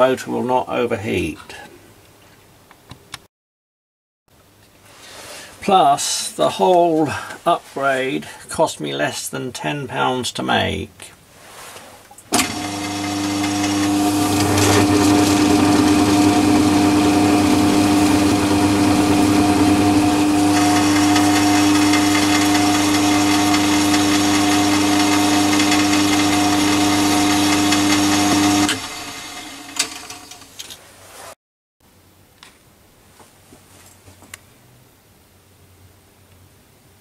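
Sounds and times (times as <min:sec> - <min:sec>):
lathe motor humming: 0:12.4 - 0:30.3.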